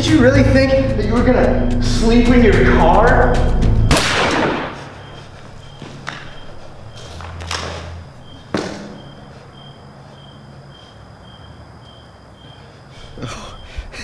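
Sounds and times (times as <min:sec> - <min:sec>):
faint high chirp: 0:04.8 - 0:07.2
sharp knocks or thuds: 0:08.5 - 0:09.0.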